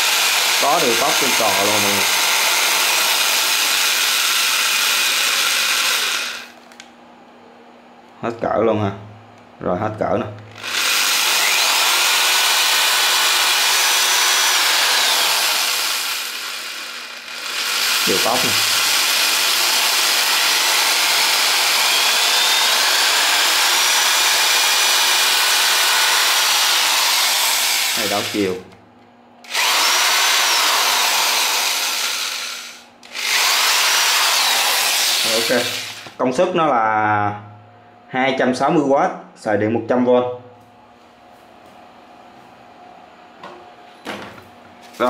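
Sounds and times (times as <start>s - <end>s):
electric drill running: 0.0s - 6.8s, 10.5s - 28.6s, 29.4s - 36.2s.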